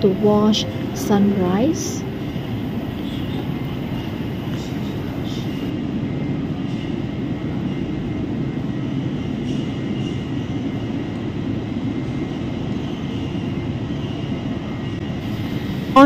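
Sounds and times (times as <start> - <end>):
faint high whine: 0.0 - 5.8, 15.1 - 16.0
low airport rumble: 0.0 - 12.8, 13.4 - 16.0.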